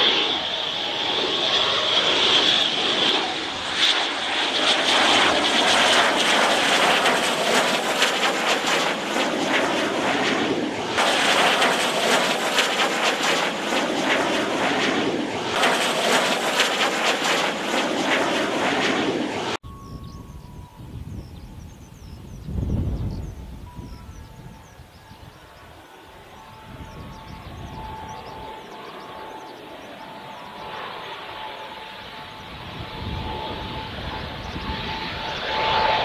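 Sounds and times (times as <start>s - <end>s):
jet noise rushing and crackling: 0.0s - 19.6s
jet engine whine: 0.0s - 36.0s.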